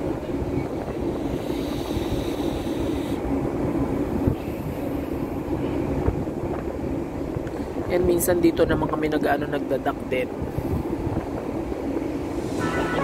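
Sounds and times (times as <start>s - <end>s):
ship engine drone: 0.0s - 7.4s, 10.5s - 13.0s
wind on microphone: 0.0s - 13.0s
brief high hiss: 12.4s - 13.0s.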